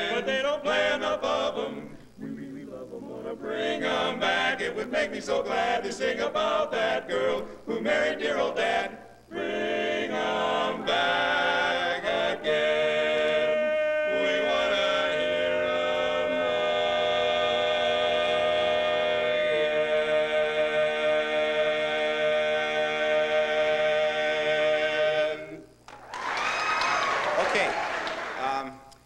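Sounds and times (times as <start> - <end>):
men singing a cappella: 0.0 - 25.8
applause: 25.9 - 28.7.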